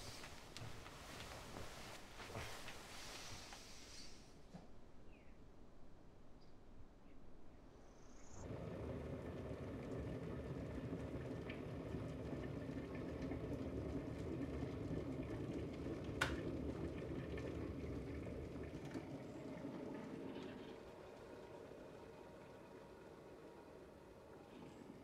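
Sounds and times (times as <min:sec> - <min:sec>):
kettle water bubbling: 0:08.4 - 0:25.0.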